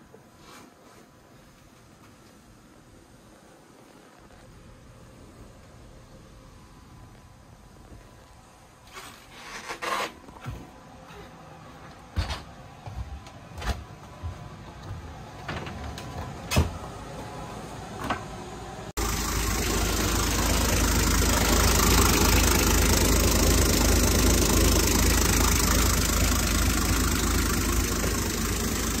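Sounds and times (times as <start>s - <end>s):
boat engine idling: 19.0s - 29.0s.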